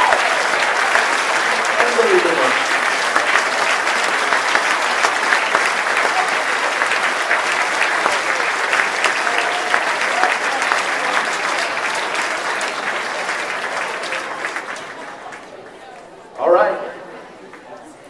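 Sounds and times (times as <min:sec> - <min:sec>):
audience applauding: 0:00.0 - 0:16.2.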